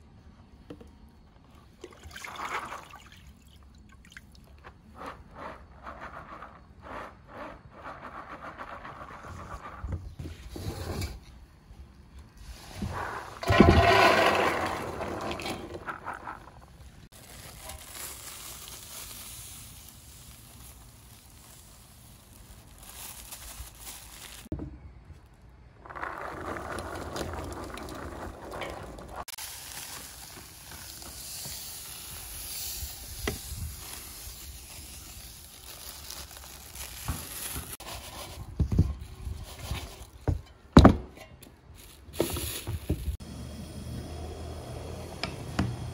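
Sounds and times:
seeds rustling as mixed: 12.4s - 24.5s, 25.8s - 40.2s, 41.7s - 43.2s
seeds pouring into a basin: 12.5s - 24.5s, 25.8s - 38.3s.

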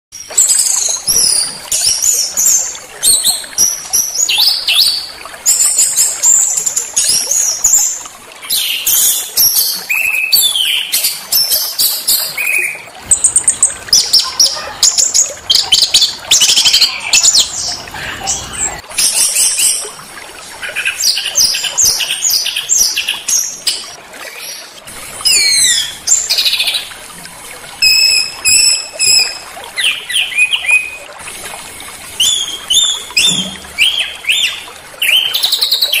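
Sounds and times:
songbirds chirping and whistling: 8.4s - 19.8s, 27.8s - 31.1s, 32.2s - 36.0s.

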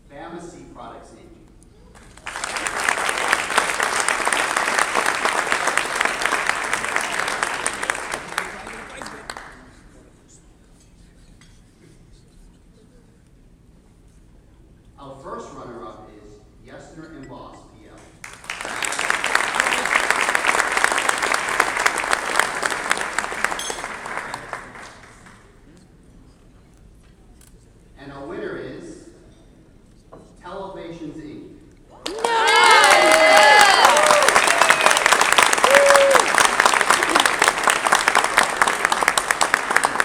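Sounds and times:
audience applauding: 2.0s - 10.0s, 18.2s - 25.6s, 32.0s - 40.0s.

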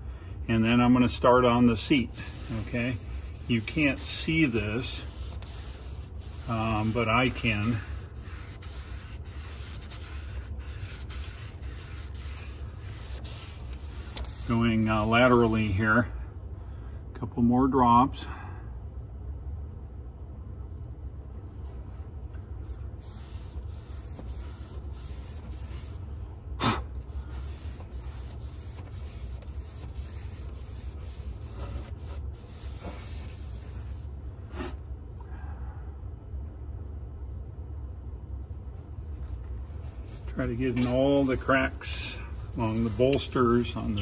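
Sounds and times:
applicator rubbing leather seat: 2.2s - 15.0s, 26.6s - 34.7s, 39.7s - 44.0s.

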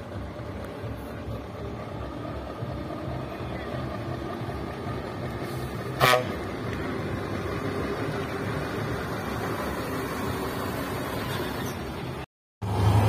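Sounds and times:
truck engine running: 0.0s - 13.0s
truck horn blast: 5.9s - 6.6s.

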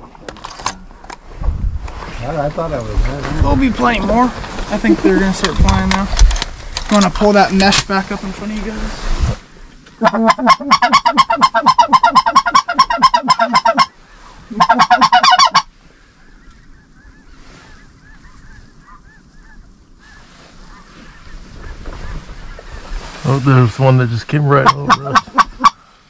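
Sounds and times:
faint goose calling: 9.6s - 26.0s
goose call honking clucks: 10.0s - 15.7s, 24.5s - 25.8s.

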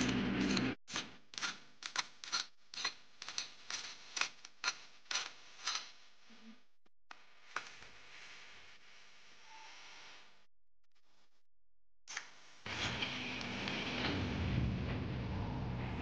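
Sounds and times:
hand tools scraping stone: 0.0s - 6.0s.

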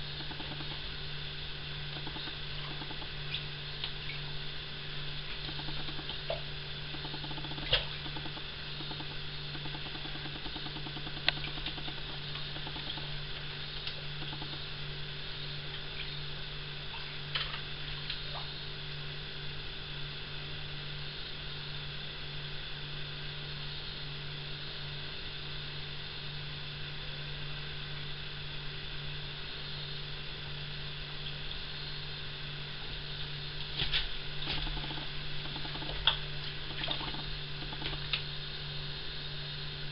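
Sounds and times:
steady low hum: 0.0s - 39.9s
sharp clicks: 0.2s - 0.8s, 2.0s - 3.1s, 5.4s - 6.2s, 7.0s - 13.1s, 13.8s - 14.6s, 34.5s - 38.2s
small water splashes: 33.8s - 38.1s.

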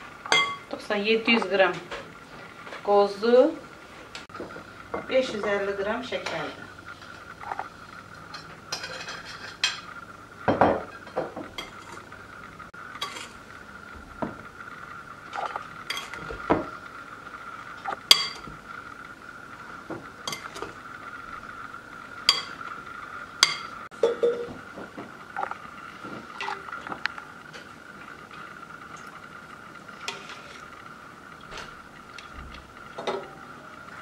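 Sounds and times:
spoon clinking glass bowl: 0.3s - 0.6s, 23.4s - 24.5s.

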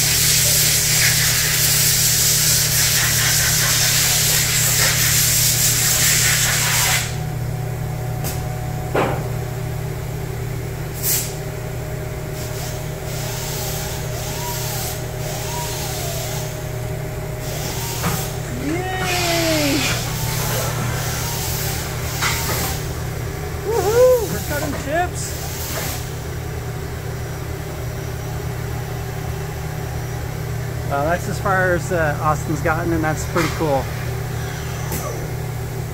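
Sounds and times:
low machine hum: 3.5s - 35.9s
robot arm motors whining: 12.6s - 23.0s
loud steady hiss: 17.4s - 20.4s.

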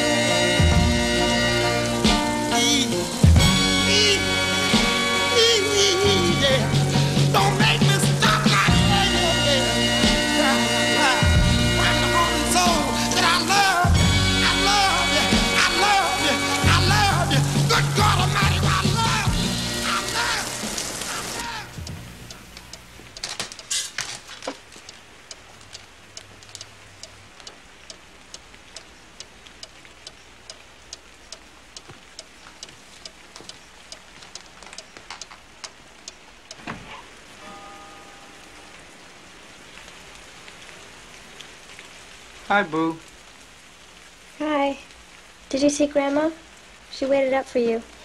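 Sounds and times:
soundtrack music: 0.0s - 22.6s
steady rain: 0.0s - 48.0s
sharp clicking drips: 11.4s - 36.7s.

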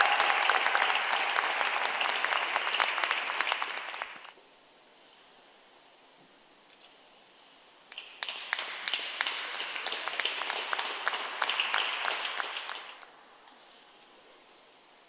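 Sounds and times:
small crowd applauding: 0.0s - 4.4s, 7.9s - 13.2s.

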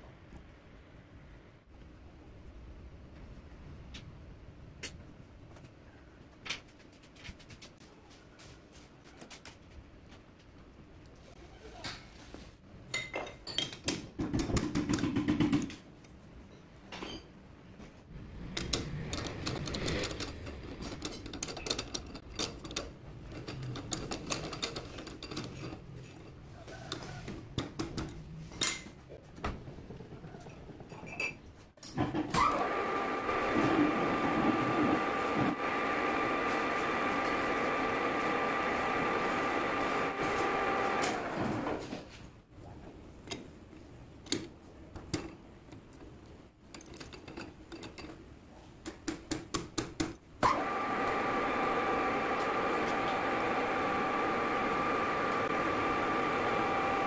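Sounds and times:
metal parts clanking: 18.6s - 26.4s, 46.7s - 48.2s.

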